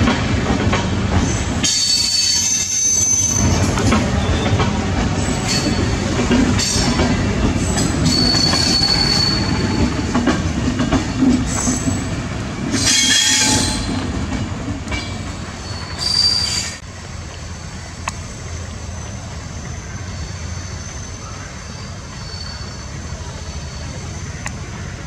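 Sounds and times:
train wheels clattering on rails: 0.0s - 16.8s
high-pitched wheel squeals: 1.6s - 4.6s, 7.6s - 10.1s, 12.8s - 14.0s, 15.6s - 16.8s, 18.8s - 24.4s.

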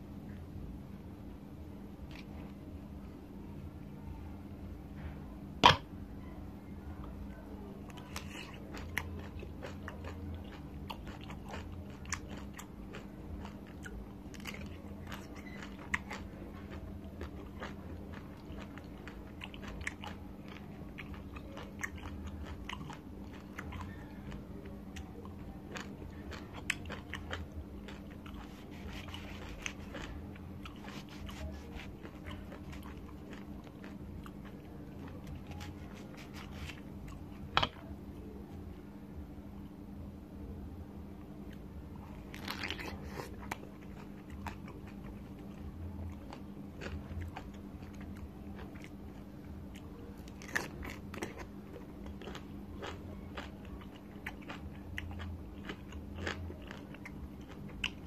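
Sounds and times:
steady low hum: 0.0s - 58.0s
person biting and chewing: 8.0s - 24.0s, 25.7s - 37.9s, 42.1s - 58.0s.

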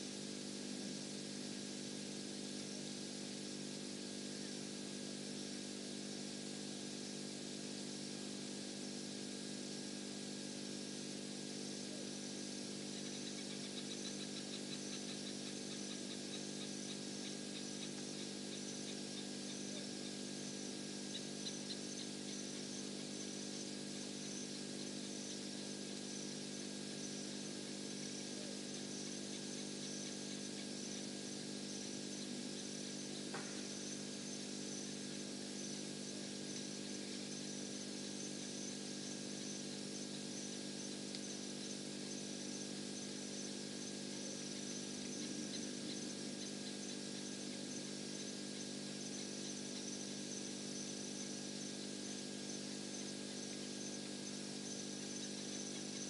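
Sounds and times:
steady low hum: 11.2s - 56.0s
insects chirping: 11.8s - 56.0s.

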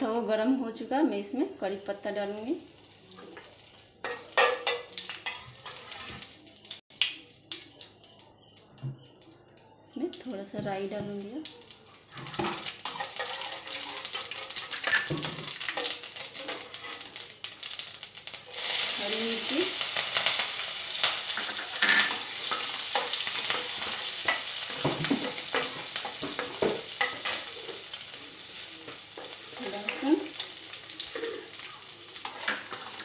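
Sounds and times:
oil sizzling: 1.2s - 33.0s
metal spatula scraping: 4.0s - 6.4s, 12.1s - 17.2s, 31.0s - 33.0s.

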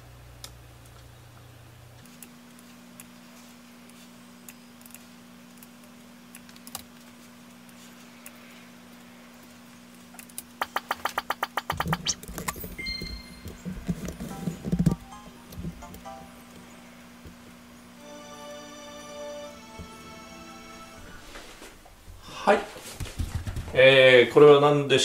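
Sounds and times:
faint steady hum: 0.0s - 25.0s
keyboard and mouse clicks: 10.2s - 16.1s
background music: 14.2s - 17.2s, 17.9s - 21.5s.

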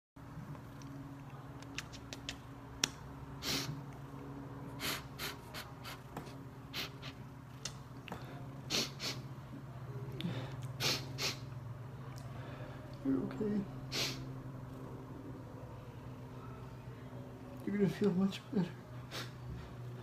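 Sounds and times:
sharp noisy breaths: 3.4s - 3.8s, 4.7s - 6.1s, 6.7s - 7.2s, 8.1s - 9.3s, 10.2s - 11.5s, 13.9s - 14.3s.

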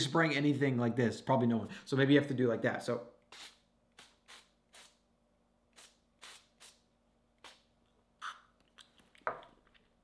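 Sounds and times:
spray bottle spritzes: 3.3s - 5.0s, 5.7s - 6.8s, 7.4s - 8.5s.

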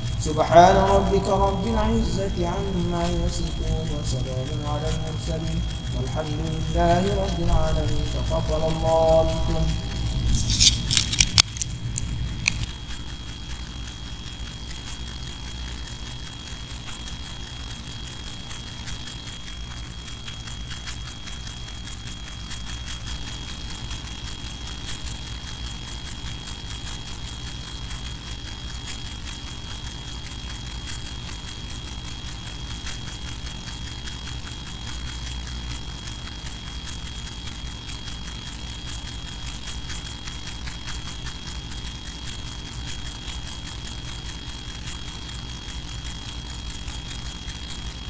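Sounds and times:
low hum of prayer hall: 0.0s - 11.2s
faint thin high whine: 0.0s - 48.0s
faint ticks: 0.0s - 48.0s
sharp clicks and knocks: 0.0s - 48.0s.

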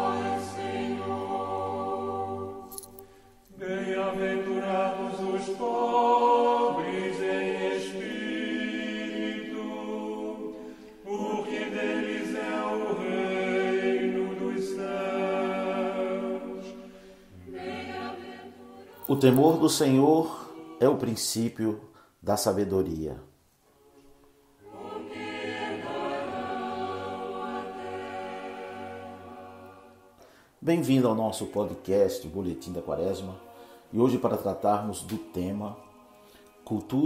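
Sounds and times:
choir singing unaccompanied chant: 0.0s - 21.7s, 23.8s - 30.2s, 30.8s - 37.0s.

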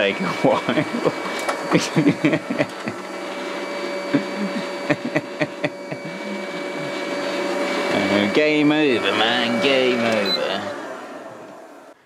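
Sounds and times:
robot vacuum motor whine: 0.0s - 12.0s
vacuum clicks and knocks: 1.2s - 1.8s.

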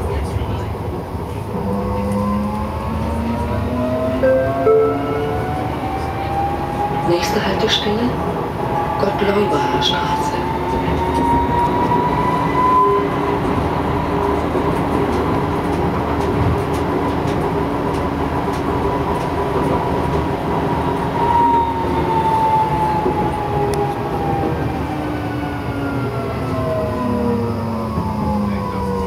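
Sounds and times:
tram running gear rumble: 5.7s - 21.2s.

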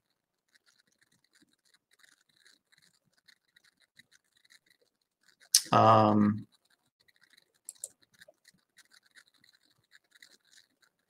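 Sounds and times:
faint scratchy ticking: 0.0s - 11.0s
man speaking: 5.6s - 6.4s.

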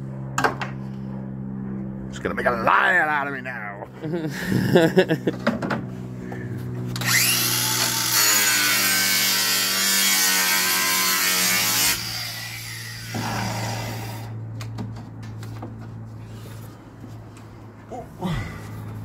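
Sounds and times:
angle grinder cutting: 6.9s - 14.4s.

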